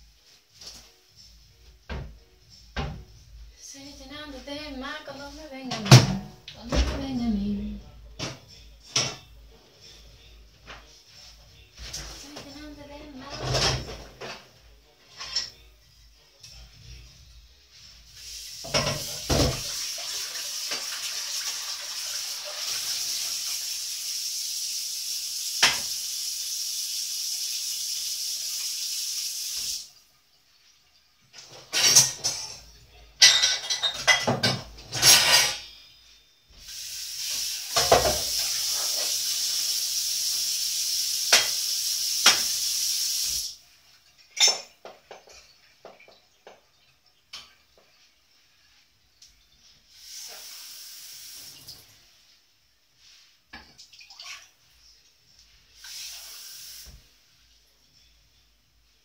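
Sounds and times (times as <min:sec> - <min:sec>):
pots and dishes clattering: 0:08.2 - 0:09.3, 0:13.2 - 0:15.6, 0:18.6 - 0:19.9, 0:31.3 - 0:35.8, 0:37.7 - 0:39.3, 0:41.3 - 0:42.6, 0:44.1 - 0:48.0
dishes clinking: 0:15.1 - 0:15.6, 0:18.7 - 0:19.6, 0:31.3 - 0:35.8, 0:44.2 - 0:47.6.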